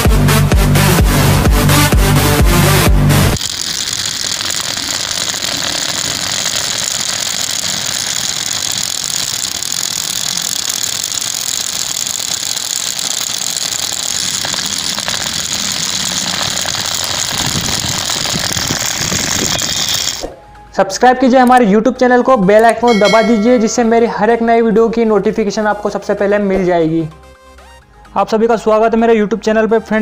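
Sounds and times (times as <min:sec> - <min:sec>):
jackhammer rattling on concrete: 0:03.4 - 0:20.3.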